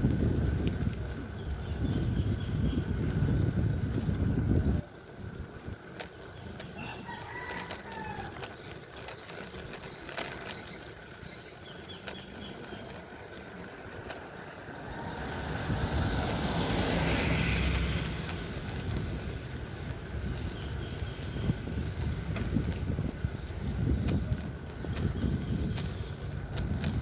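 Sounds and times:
wind rush: 0:00.0 - 0:05.4, 0:14.6 - 0:27.0
tyres on wet road: 0:00.0 - 0:27.0
rooster crowing: 0:06.7 - 0:08.4.

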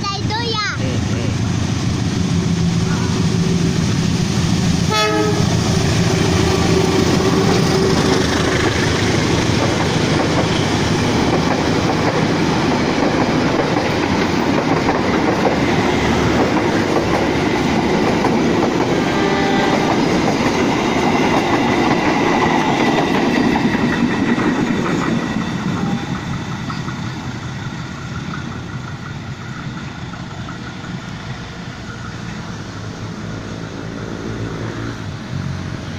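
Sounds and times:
multi-tone train horn: 0:04.9 - 0:05.8, 0:18.9 - 0:20.2, 0:25.7 - 0:26.2
carriages clacking over rail joints: 0:05.5 - 0:34.4.

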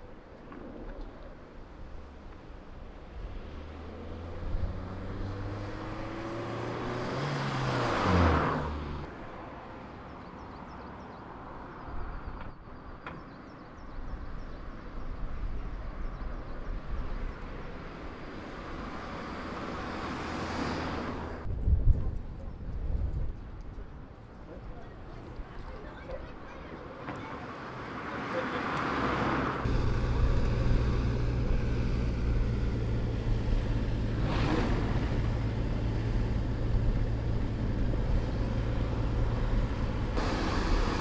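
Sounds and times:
road noise: 0:00.0 - 0:41.0
car driving past: 0:03.4 - 0:09.1.

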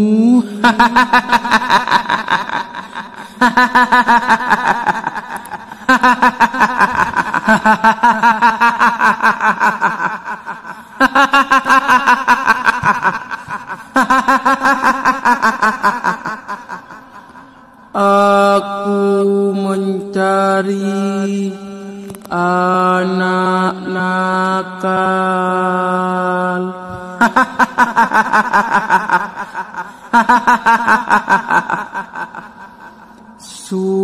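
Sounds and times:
woman's shrill cackling laugh: 0:00.6 - 0:17.0.

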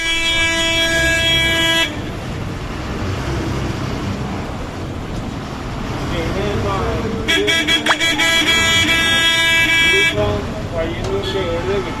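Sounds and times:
bus horn blast: 0:00.0 - 0:02.2, 0:07.2 - 0:10.3
road noise: 0:00.0 - 0:12.0
bus engine running: 0:00.2 - 0:11.2.

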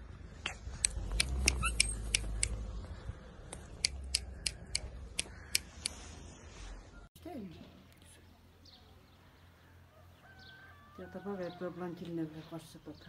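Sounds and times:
small bird chip calls: 0:00.4 - 0:02.6, 0:03.5 - 0:06.1.

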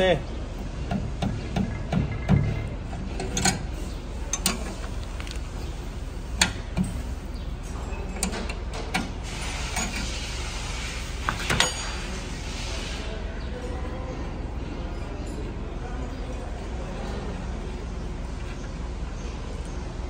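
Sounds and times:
low workshop hum: 0:00.0 - 0:20.0
metal tools clinking on metal: 0:03.2 - 0:05.6, 0:11.4 - 0:12.2.

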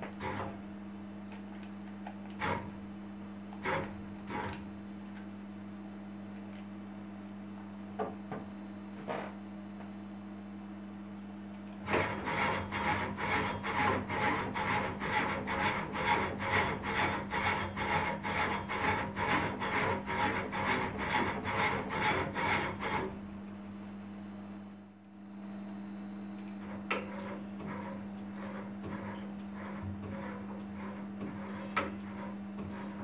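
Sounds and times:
steady low hum: 0:00.0 - 0:33.0
robot motors rasping whir: 0:02.3 - 0:02.8, 0:03.5 - 0:04.7.

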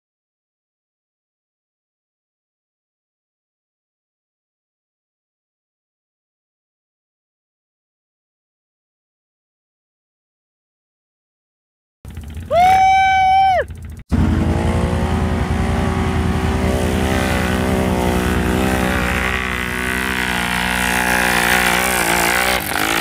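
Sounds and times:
atv engine revving: 0:12.1 - 0:23.0.

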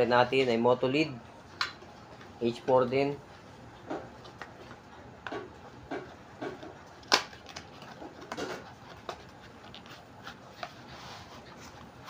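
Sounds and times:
packaging crinkling and scraping: 0:06.9 - 0:12.0.

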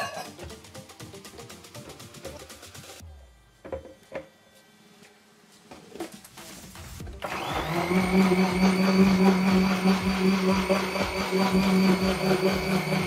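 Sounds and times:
blender motor grinding: 0:07.2 - 0:13.0.

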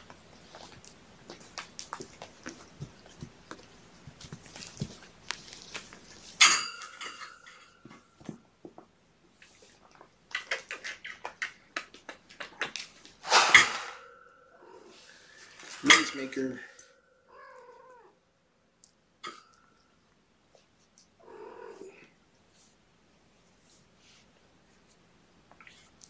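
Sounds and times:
cats meowing: 0:14.5 - 0:15.3, 0:17.3 - 0:18.2, 0:21.2 - 0:22.2.

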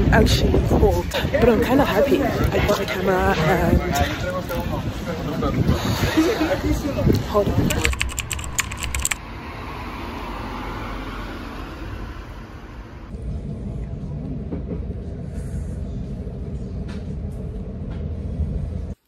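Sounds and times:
road traffic: 0:03.3 - 0:19.0
car passing by: 0:09.2 - 0:13.1
train rumbling inside carriage: 0:12.2 - 0:19.0.

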